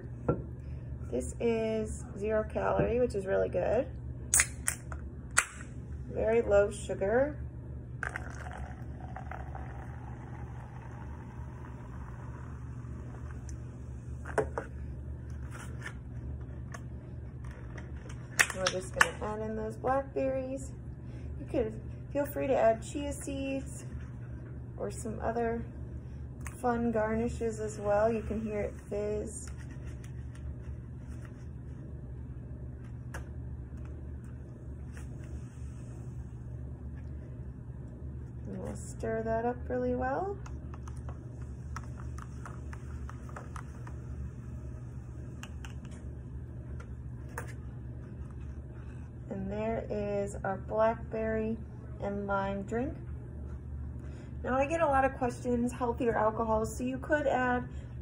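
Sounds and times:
steady low hum: 0.0 - 58.0
seltzer pouring and fizzing: 8.0 - 13.0.

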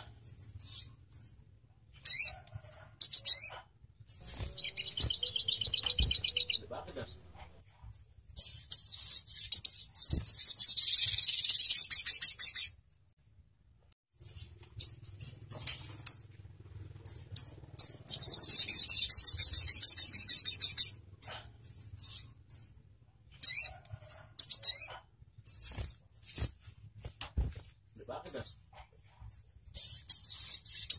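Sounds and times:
bird chirping: 0.0 - 12.8, 14.1 - 26.6, 28.0 - 30.9
bird fast rattling trills: 4.1 - 6.6, 8.5 - 12.7, 14.2 - 21.0.

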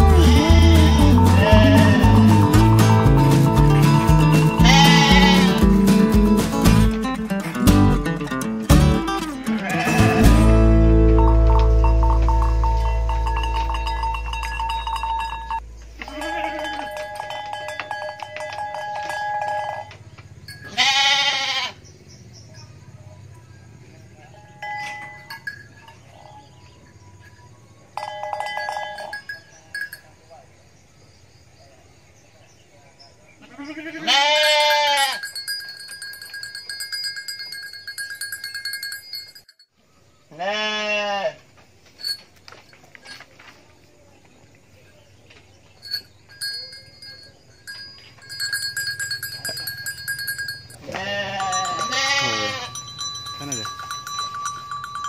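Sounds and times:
sheep bleating: 0.0 - 3.3, 4.1 - 5.8, 9.5 - 10.7, 16.0 - 17.0, 20.7 - 21.8, 33.4 - 35.2, 40.3 - 41.4, 50.8 - 52.8
light plucked bell-like music: 0.0 - 5.8, 8.8 - 19.8, 45.8 - 55.0
high ringing with fast rattle: 11.2 - 21.3, 24.6 - 30.4, 34.3 - 39.7, 42.0 - 43.3, 45.7 - 55.0.

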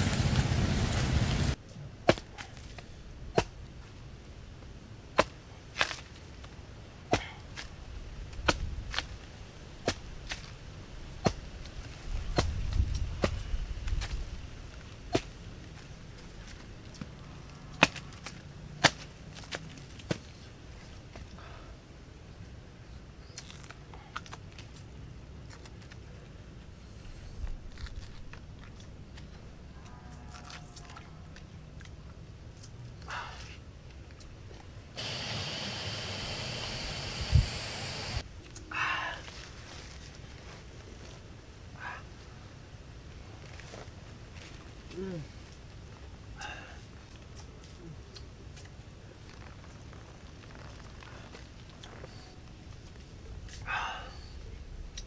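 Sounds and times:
machete chopping coconut husk: 2.0 - 3.6, 5.2 - 6.1, 7.1 - 7.4, 9.8 - 10.4, 15.1 - 15.4, 17.8 - 20.3.

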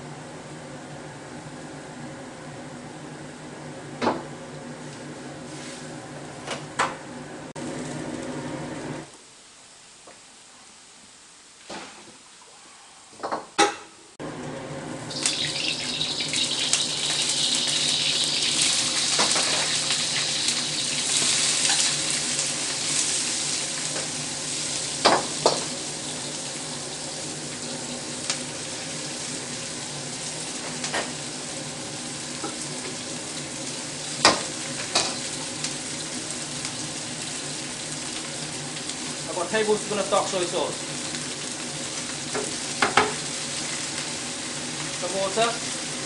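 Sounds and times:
wok burner rumble: 0.0 - 9.1, 14.2 - 46.0
bean sprouts sizzling in a wok: 4.6 - 6.0, 7.6 - 10.5, 14.2 - 46.0.

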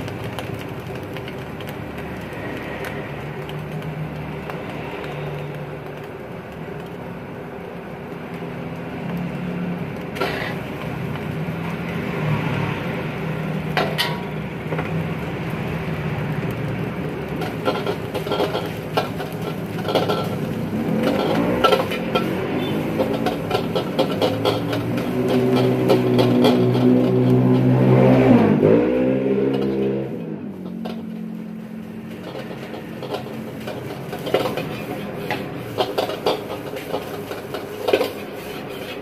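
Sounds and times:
gas burner roaring: 0.0 - 39.0
metal utensils scraping wok: 10.1 - 14.9, 17.2 - 39.0.

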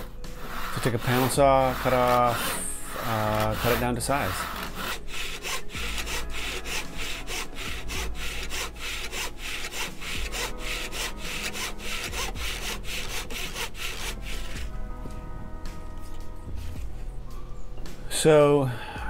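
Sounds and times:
handsaw cutting wood: 0.0 - 14.8.

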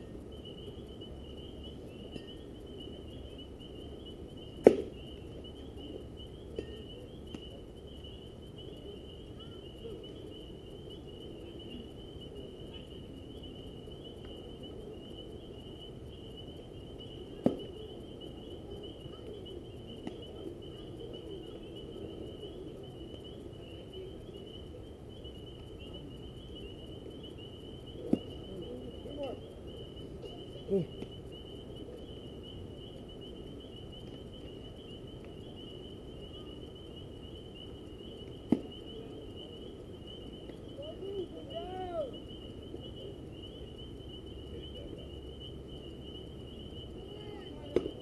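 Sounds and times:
insects chirring: 0.0 - 48.0
baseball smacking into glove: 4.6 - 4.9.

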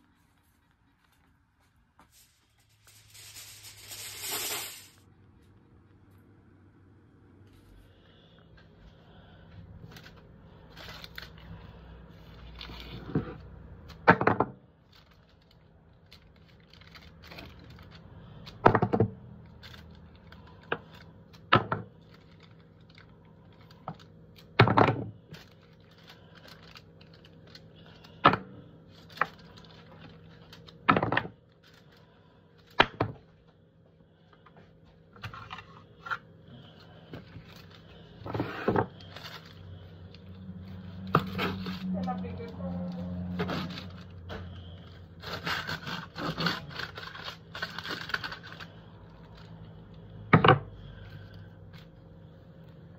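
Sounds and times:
foil crinkling: 2.1 - 5.0, 9.8 - 13.0, 14.8 - 18.6, 19.3 - 24.6, 25.2 - 28.2, 28.9 - 32.8, 36.6 - 38.2, 38.9 - 41.9, 43.1 - 49.9
steady low hum: 14.7 - 52.9.

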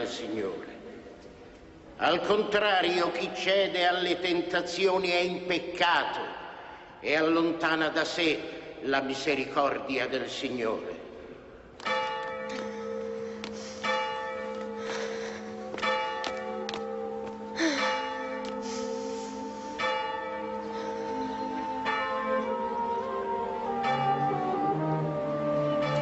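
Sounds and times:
church bell tolling: 11.8 - 26.0.

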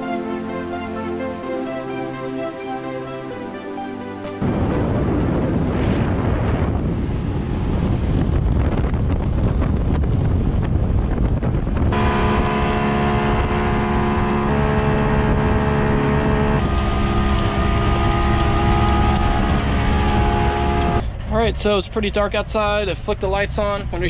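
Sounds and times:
wind buffeting the microphone: 4.4 - 14.5
water rushing: 11.9 - 21.0
outboard motor droning: 11.9 - 21.3.

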